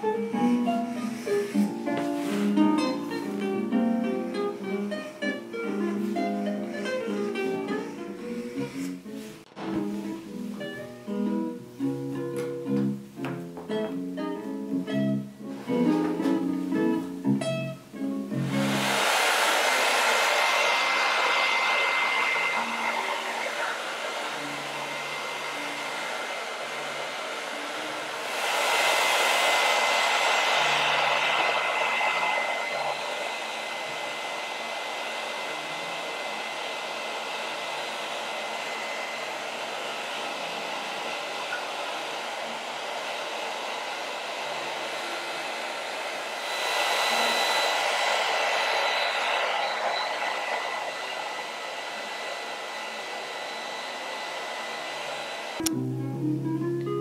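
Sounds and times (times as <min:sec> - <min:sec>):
hair dryer blowing: 0:00.0 - 0:55.8.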